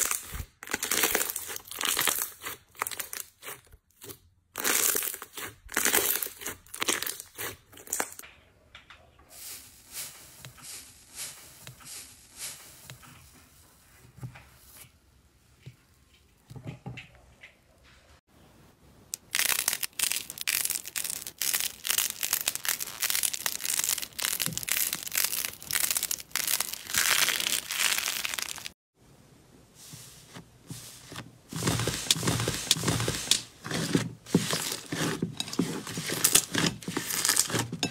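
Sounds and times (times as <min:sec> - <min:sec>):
crusted slime crackling and crunching: 0:00.0 - 0:08.2, 0:19.2 - 0:28.8, 0:31.5 - 0:37.9
slime squishing: 0:00.0 - 0:08.2, 0:30.8 - 0:37.9.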